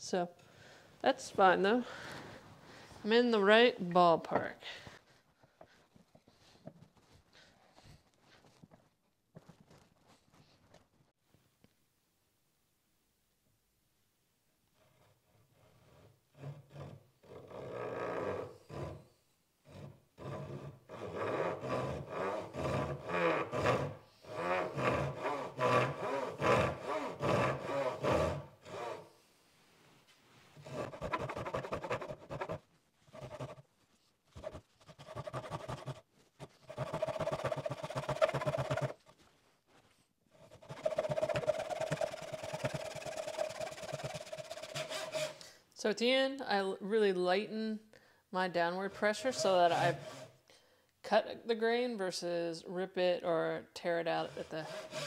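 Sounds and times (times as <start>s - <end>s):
hand saw cutting wood: 14.8s - 19.1s, 19.7s - 29.2s, 30.6s - 33.7s, 34.3s - 39.1s, 40.3s - 45.5s, 49.2s - 50.4s, 54.1s - 55.0s.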